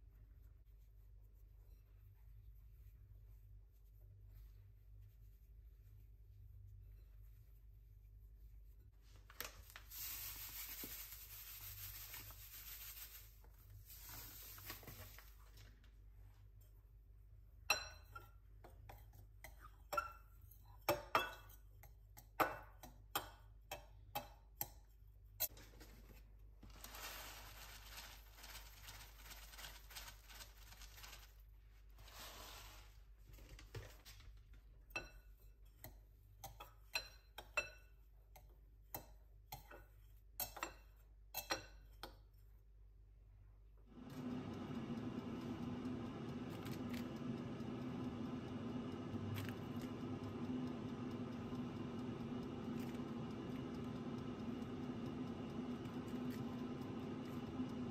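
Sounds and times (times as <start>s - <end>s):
fingertips rustling in flour: 0.0s - 16.3s, 25.7s - 33.4s
knife stirring dry mixture: 9.8s - 15.4s, 17.7s - 33.0s, 34.9s - 42.4s.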